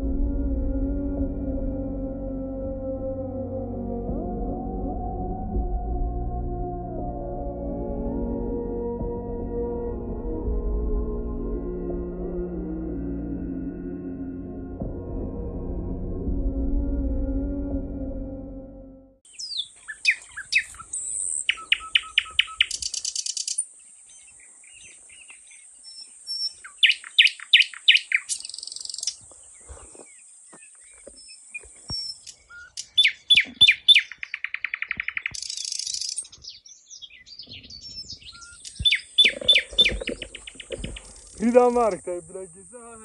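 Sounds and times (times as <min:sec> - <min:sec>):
birds singing and calling: 0:19.3 - 0:43.0
high-pitched insect drone: 0:38.7 - 0:43.0.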